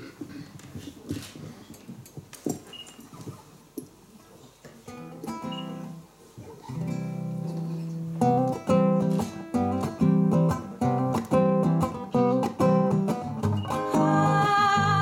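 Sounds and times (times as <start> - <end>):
acoustic guitar playing: 4.9 - 15.0.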